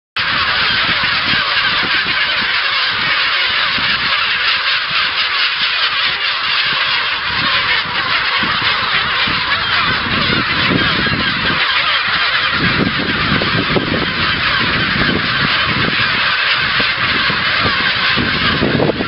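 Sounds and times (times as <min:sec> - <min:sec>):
gulls crying: 0:00.2 - 0:19.0.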